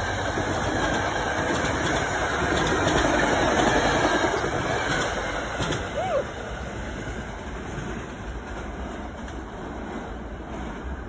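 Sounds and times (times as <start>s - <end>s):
train wheels rolling on rails: 0.0s - 11.0s.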